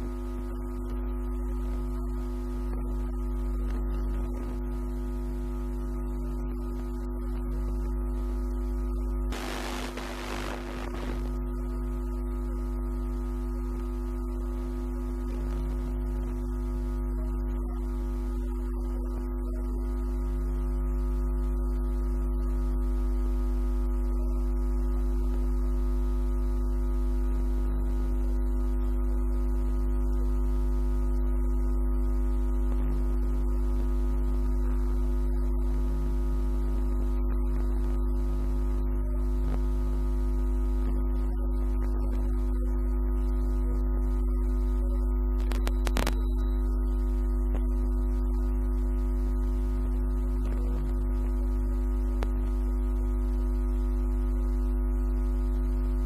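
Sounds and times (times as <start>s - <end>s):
deep low hum: 2.7s - 11.8s
held drone tones: 9.3s - 11.3s.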